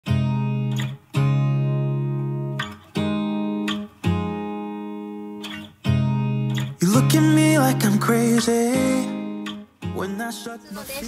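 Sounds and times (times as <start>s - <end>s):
guitar chords strummed: 0.0s - 11.0s.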